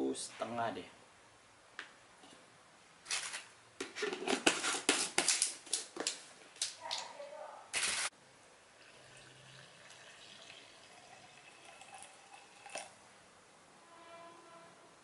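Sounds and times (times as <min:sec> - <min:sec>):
water pouring into cup: 0:08.7 - 0:13.0.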